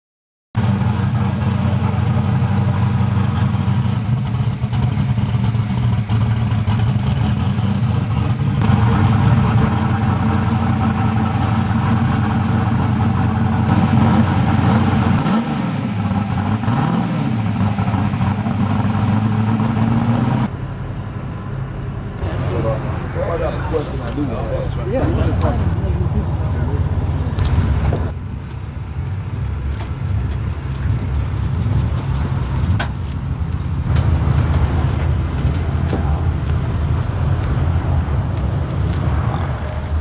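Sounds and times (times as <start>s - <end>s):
car engine idling: 0.6s - 15.2s, 17.4s - 40.0s
engine revving: 0.6s - 20.6s.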